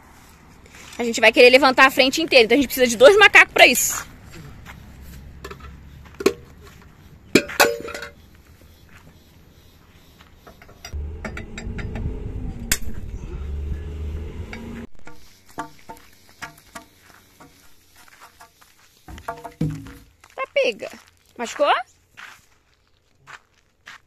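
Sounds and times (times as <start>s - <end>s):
lug wrench clinking on wheel nuts: 7.4s - 8.2s, 10.4s - 12.1s
low rumbling: 10.9s - 15.1s.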